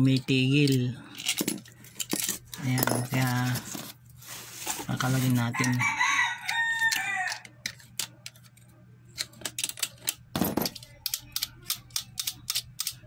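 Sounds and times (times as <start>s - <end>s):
metal clicks of nuts unscrewed: 0.0s - 3.6s
rooster crowing: 5.5s - 7.6s.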